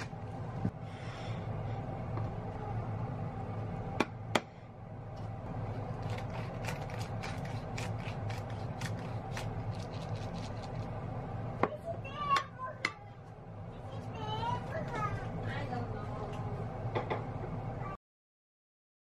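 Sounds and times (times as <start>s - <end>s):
steady low hum: 0.0s - 18.0s
pepper mill grinding: 5.7s - 10.9s.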